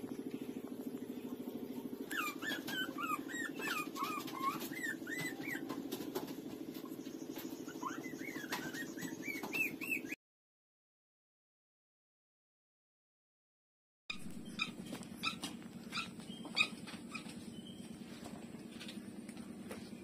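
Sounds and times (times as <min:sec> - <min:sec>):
puppies squeaking and whining: 0:01.9 - 0:10.2, 0:14.1 - 0:18.3.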